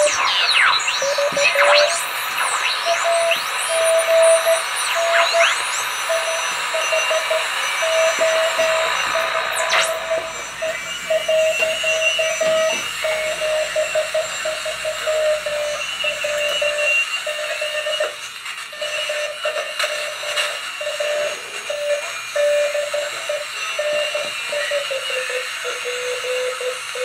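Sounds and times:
morse code tone: 0:00.0 - 0:18.2
radio band noise hiss: 0:00.0 - 0:27.0
sweeping radio whistles: 0:00.0 - 0:27.0.

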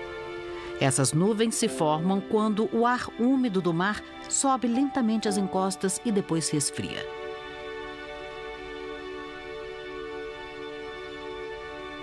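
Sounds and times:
soft held chord: 0:01.2 - 0:10.4.

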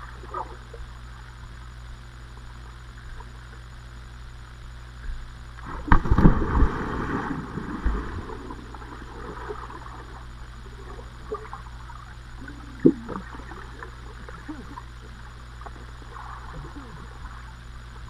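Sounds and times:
muffled underwater hiss: 0:00.0 - 0:18.0
heavy splash into water: 0:05.7 - 0:08.3.

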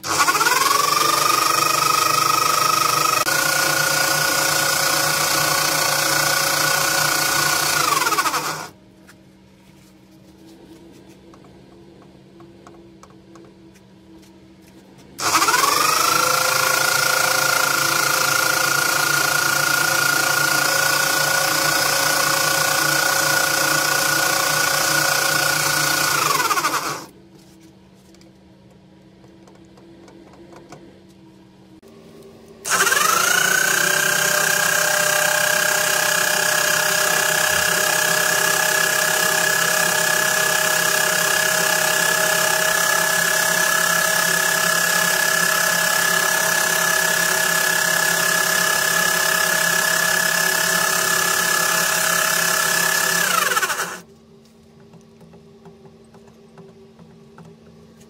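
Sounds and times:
electric motor whining: 0:00.0 - 0:08.8, 0:15.2 - 0:27.1, 0:32.7 - 0:54.0.

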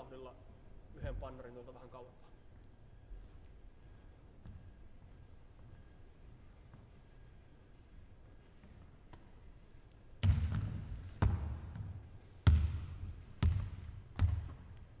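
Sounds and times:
volleyball bouncing on floor: 0:10.2 - 0:14.9.

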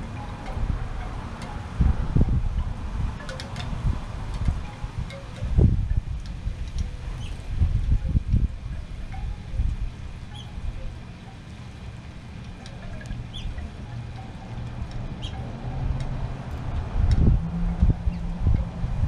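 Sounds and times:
wind buffeting microphone: 0:00.0 - 0:19.0
faint bird chirps: 0:10.3 - 0:10.6, 0:13.3 - 0:13.6.

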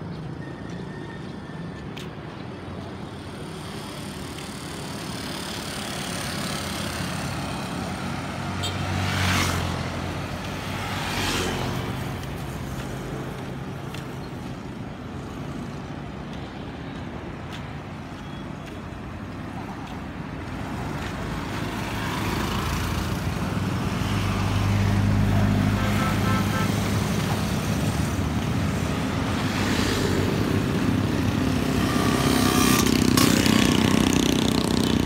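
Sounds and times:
street traffic: 0:00.0 - 0:35.0
motor scooter passing: 0:03.5 - 0:13.6, 0:26.7 - 0:35.0.

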